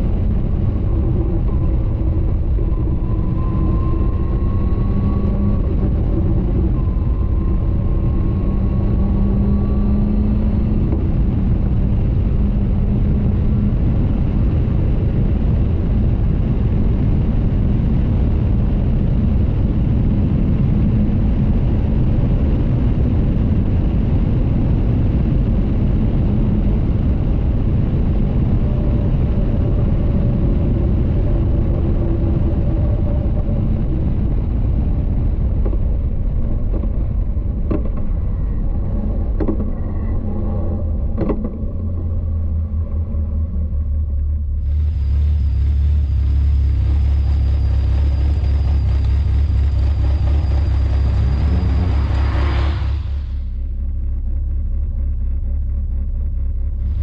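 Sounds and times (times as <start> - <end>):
wind rush: 0.0 - 53.8
car engine running: 40.6 - 57.0.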